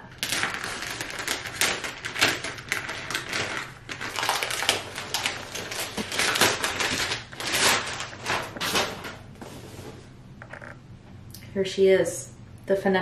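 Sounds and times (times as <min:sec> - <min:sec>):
plastic mailer crinkling and tearing: 0:00.0 - 0:09.2.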